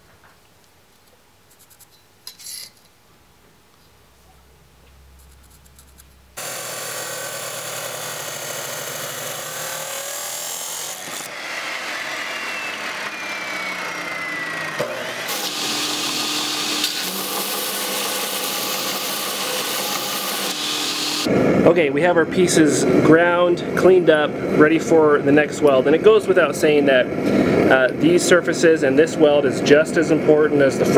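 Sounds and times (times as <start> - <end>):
belt grinder grinding: 5.9 - 21.3
chop saw cutting steel: 6.4 - 21.3
falling whine: 6.4 - 28.0.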